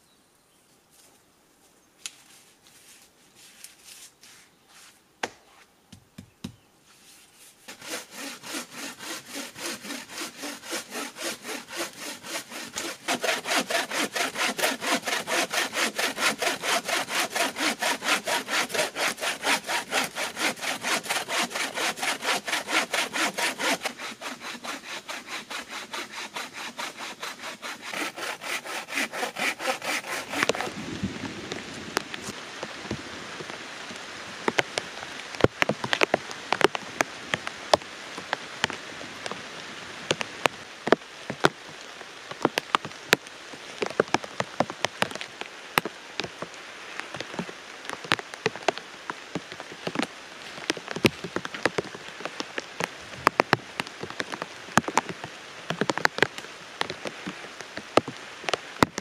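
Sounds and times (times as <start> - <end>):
bow saw cutting log: 7.4 - 30.8
rain falling: 29.9 - 59.0.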